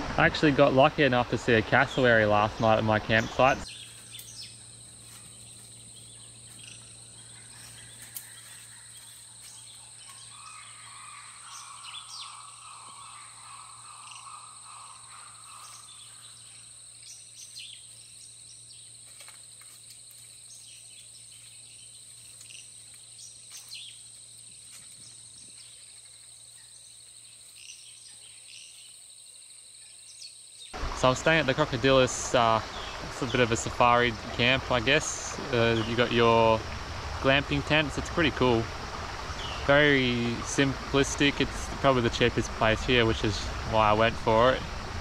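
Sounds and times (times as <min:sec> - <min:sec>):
bird chirps: 0:01.6 - 0:19.0, 0:29.8 - 0:44.9
high-pitched insect hum: 0:01.6 - 0:45.0
low steady hum: 0:30.8 - 0:45.0.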